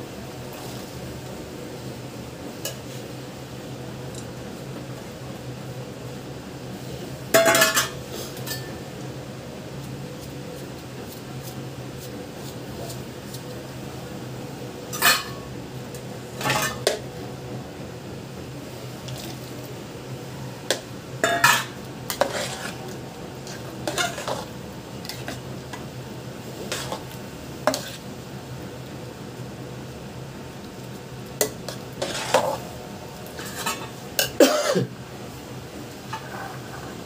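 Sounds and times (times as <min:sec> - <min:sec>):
utensils scraping steel bowl: 0:21.2 - 0:24.5, 0:26.7 - 0:27.0, 0:27.7 - 0:28.0, 0:31.7 - 0:32.6.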